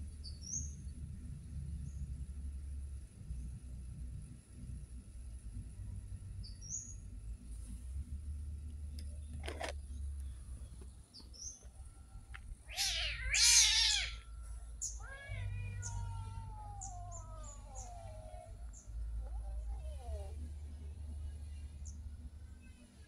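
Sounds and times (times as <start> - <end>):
cats meowing: 12.7 - 20.4.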